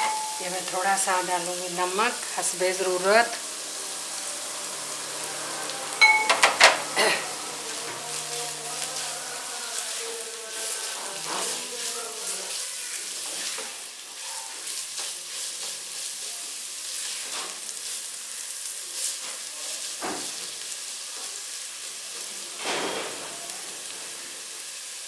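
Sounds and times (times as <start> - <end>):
food sizzling in oil: 0.0 - 25.0
spatula scraping pan: 10.5 - 16.2.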